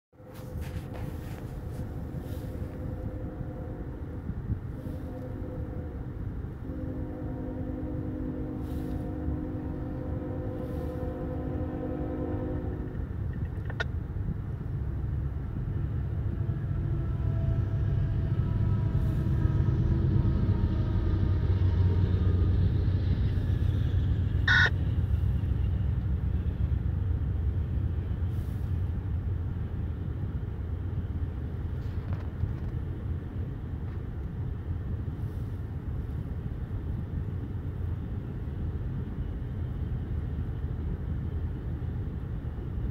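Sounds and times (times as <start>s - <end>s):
diesel locomotive rumble: 0.1s - 42.9s
locomotive air horn: 0.3s - 13.2s, 16.2s - 25.7s.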